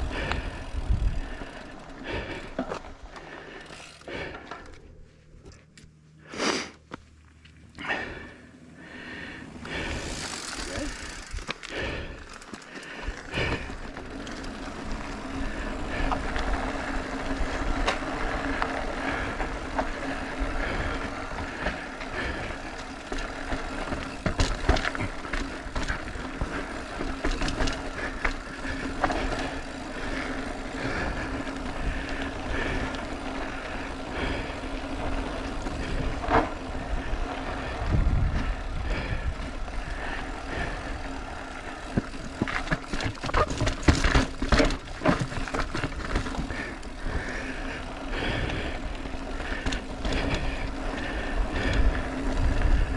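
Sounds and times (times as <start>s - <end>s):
wind buffeting microphone: 0.0s - 2.2s, 33.9s - 41.0s, 47.9s - 52.9s
bike tyres rumbling over rock: 0.0s - 5.1s, 7.8s - 52.9s.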